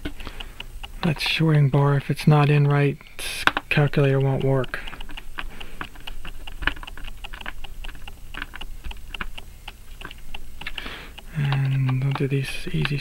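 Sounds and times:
screwdriver clicking and scraping: 0:03.4 - 0:13.0.

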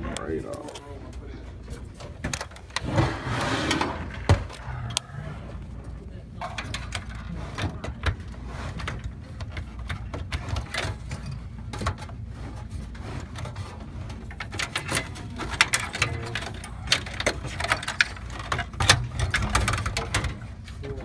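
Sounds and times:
sheet metal clicking and rattling: 0:06.4 - 0:21.0.

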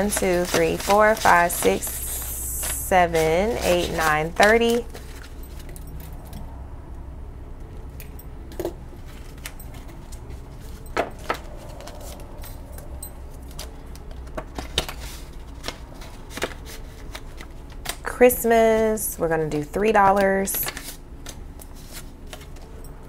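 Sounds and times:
paper rustling: 0:00.0 - 0:05.8, 0:09.0 - 0:12.7, 0:13.3 - 0:18.0, 0:19.5 - 0:22.8.

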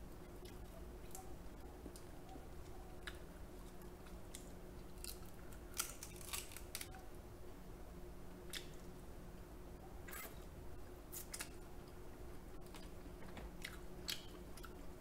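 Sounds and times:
chewing: 0:01.9 - 0:07.0, 0:12.6 - 0:14.8
crab shell cracking: 0:04.3 - 0:07.0.

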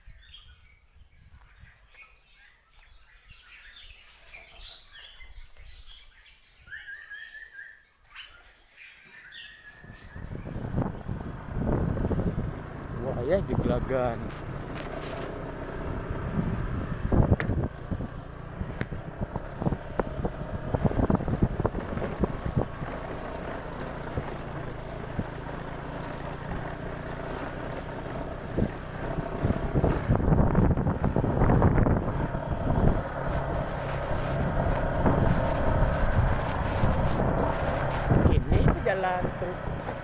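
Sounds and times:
wind on microphone: 0:09.8 - 0:13.8, 0:16.2 - 0:24.4, 0:28.4 - 0:39.9
scooter engine running: 0:09.8 - 0:40.0.

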